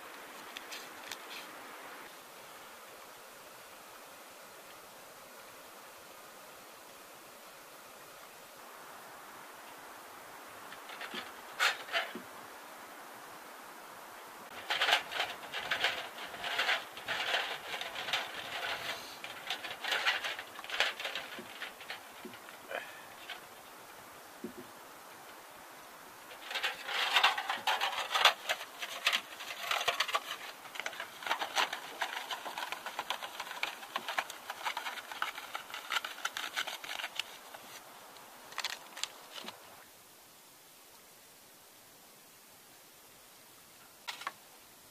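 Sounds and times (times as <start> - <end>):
aluminium foil crinkling: 14.5 - 23.5, 26.3 - 37.8, 38.5 - 39.6.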